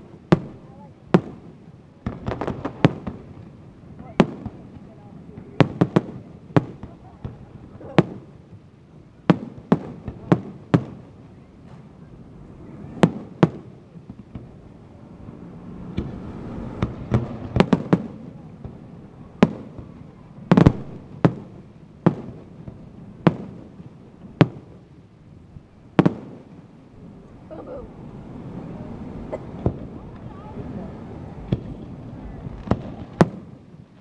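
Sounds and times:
firework shells booming: 0:15.9 - 0:24.9, 0:31.4 - 0:33.8.

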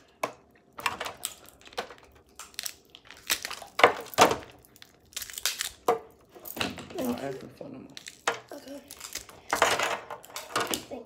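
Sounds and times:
crab shells cracking: 0:00.2 - 0:06.1, 0:07.9 - 0:09.6.

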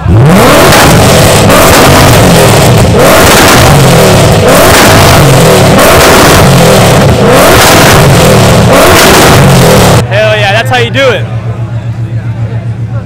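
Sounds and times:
car engine revving hard: 0:00.0 - 0:10.0.

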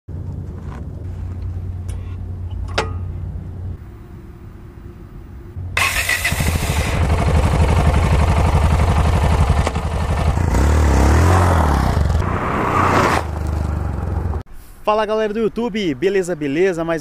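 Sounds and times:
motorcycle engine revving: 0:05.8 - 0:14.4.

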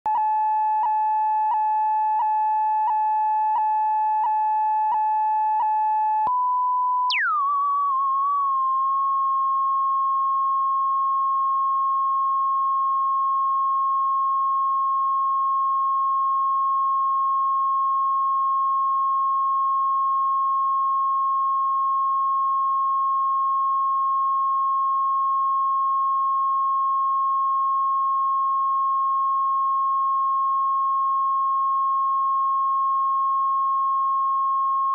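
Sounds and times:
whistle-like test tone: 0:06.0 - 0:11.2.

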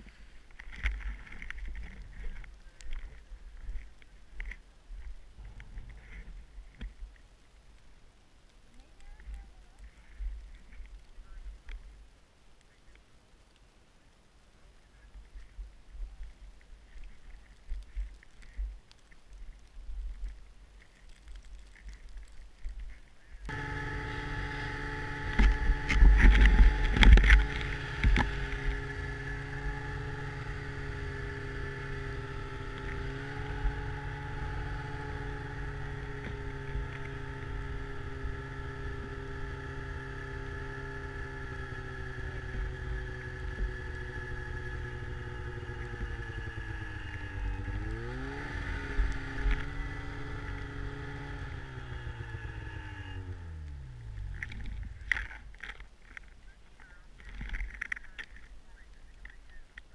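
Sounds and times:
snowmobile engine running: 0:23.5 - 0:55.4.

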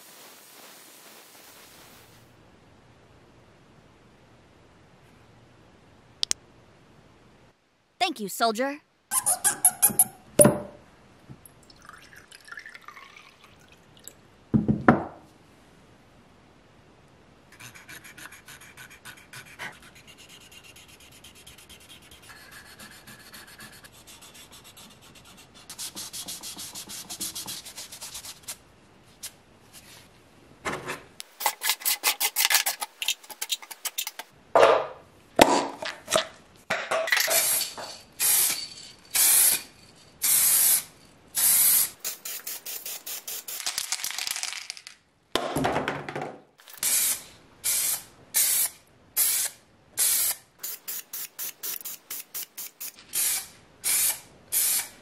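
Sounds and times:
aerosol spray can hissing: 0:37.4 - 0:38.6, 0:39.2 - 0:43.8, 0:46.8 - 0:54.9.

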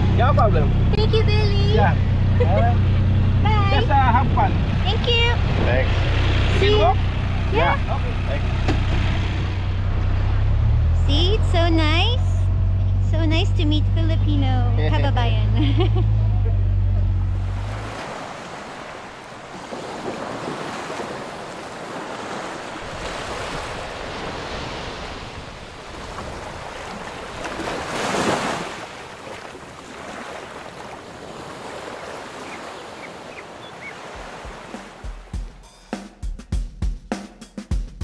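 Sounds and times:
wind on microphone: 0:03.5 - 0:06.6
small waves washing up beach: 0:17.4 - 0:35.3.

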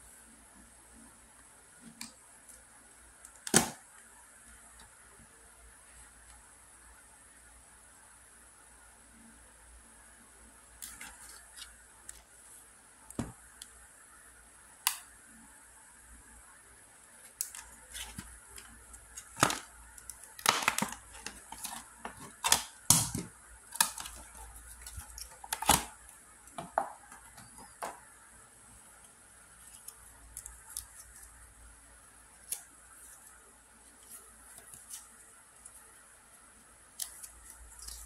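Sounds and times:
plastic packaging crinkling: 0:17.5 - 0:22.8.

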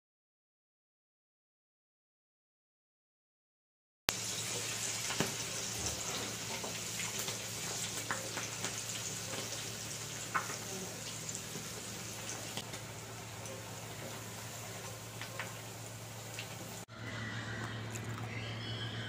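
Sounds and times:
fritters sizzling in hot oil: 0:04.1 - 0:16.9.

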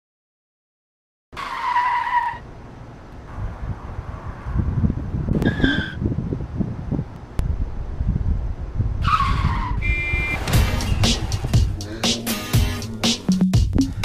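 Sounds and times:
wind rumbling on microphone: 0:03.3 - 0:11.8
high whistle-like tones: 0:09.7 - 0:11.0.

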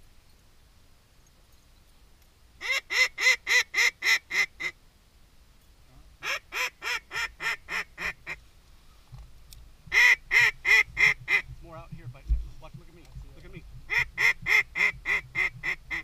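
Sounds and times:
duck call quacks: 0:02.6 - 0:04.7, 0:06.2 - 0:08.4, 0:09.9 - 0:11.5, 0:13.9 - 0:16.0.

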